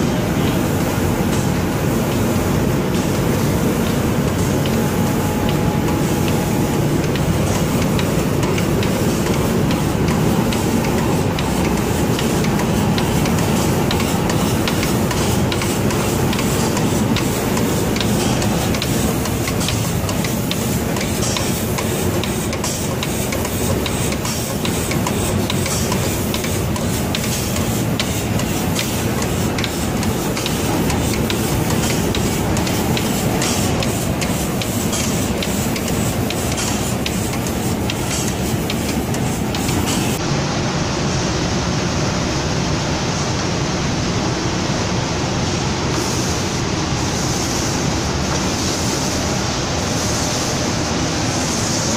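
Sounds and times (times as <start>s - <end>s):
paint spraying machine running: 0.0s - 42.2s, 43.2s - 51.9s
spray guns hissing: 0.9s - 40.2s.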